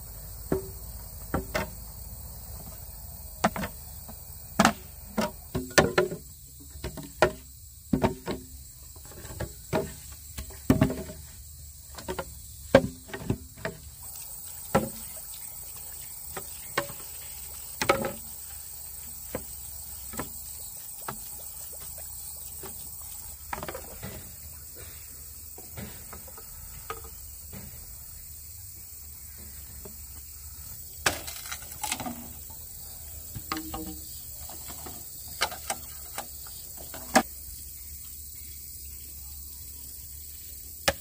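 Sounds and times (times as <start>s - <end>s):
faint steady hiss: 0.0s - 41.0s.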